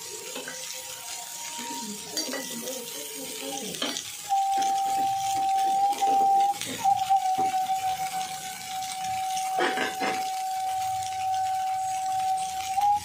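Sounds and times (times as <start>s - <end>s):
steady high tone: 4.3s - 13.0s.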